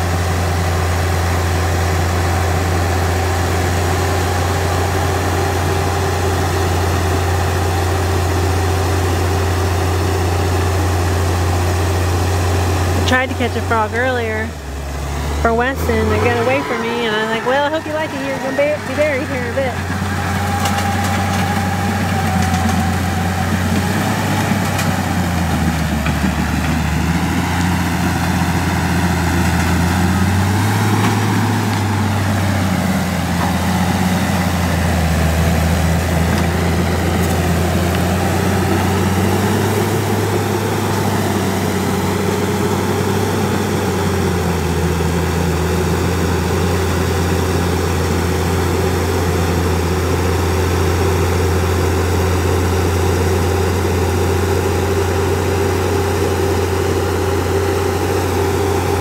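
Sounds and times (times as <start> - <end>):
bulldozer diesel engine running: 0.0 - 59.0.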